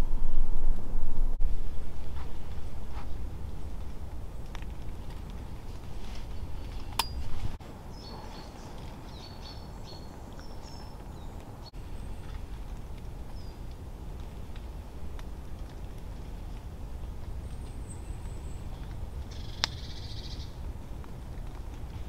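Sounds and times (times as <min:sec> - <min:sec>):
low rumble of wind: 0:00.0 - 0:22.0
small birds chirping: 0:07.8 - 0:13.8, 0:16.9 - 0:20.7.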